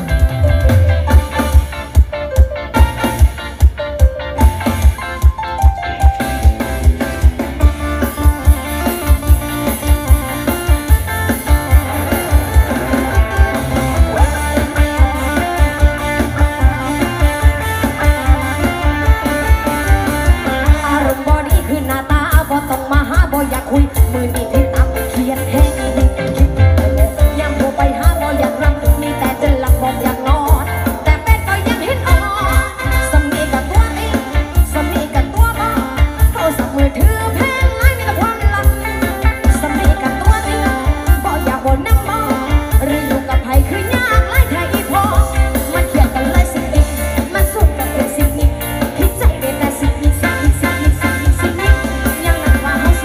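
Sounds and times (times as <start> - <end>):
loud music with singing: 0.0 - 53.0
pop song with vocal: 20.4 - 53.0.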